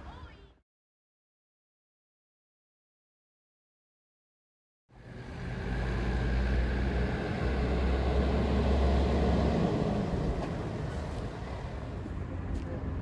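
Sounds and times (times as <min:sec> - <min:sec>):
low engine-like drone: 0:04.9 - 0:13.0.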